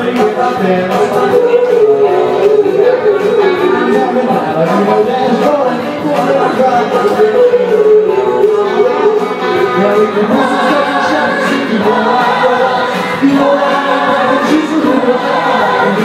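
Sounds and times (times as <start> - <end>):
man singing into a microphone: 0.0 - 16.0.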